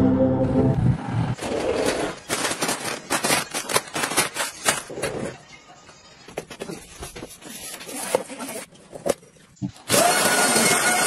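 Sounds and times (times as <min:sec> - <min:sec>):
plastic packets crinkling: 0:01.8 - 0:05.1.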